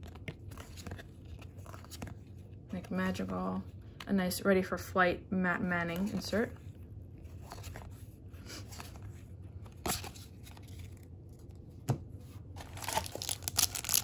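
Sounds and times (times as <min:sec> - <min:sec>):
cards rustling: 0:00.0 - 0:04.1, 0:05.9 - 0:14.0
wrapper crinkling and tearing: 0:12.6 - 0:14.0.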